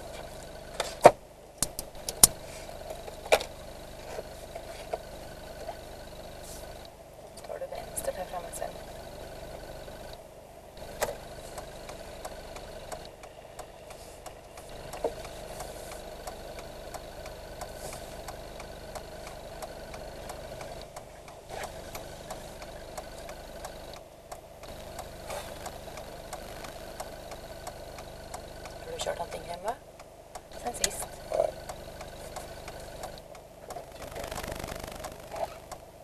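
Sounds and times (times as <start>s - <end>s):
car engine hum from cabin: 0.0s - 36.0s
sharp clicks: 0.8s - 3.6s, 10.8s - 28.8s, 29.4s - 36.0s
light ticking: 1.6s - 36.0s.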